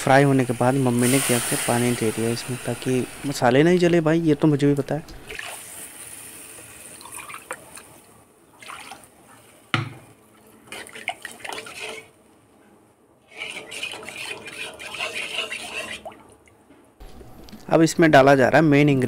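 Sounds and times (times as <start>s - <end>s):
water poured into hot pan hissing: 0.4s - 3.4s
spatula scraping and stirring pan: 10.6s - 12.2s, 13.3s - 16.2s.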